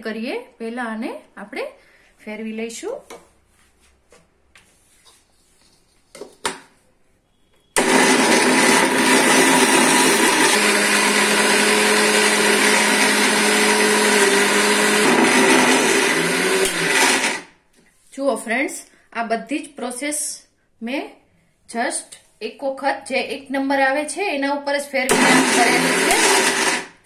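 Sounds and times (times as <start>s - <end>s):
mixer grinder running: 7.8s - 17.5s, 25.1s - 27.0s.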